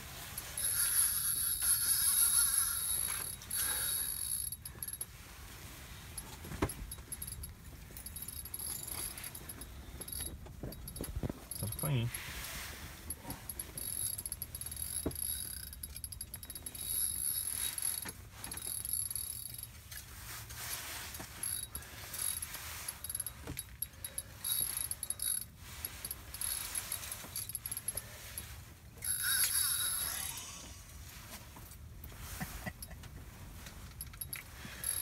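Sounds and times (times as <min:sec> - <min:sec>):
fishing reel whirring and clicking: 0:00.4 - 0:05.0, 0:06.8 - 0:11.8, 0:13.1 - 0:19.7, 0:21.4 - 0:28.1, 0:29.0 - 0:30.6, 0:34.0 - 0:35.0.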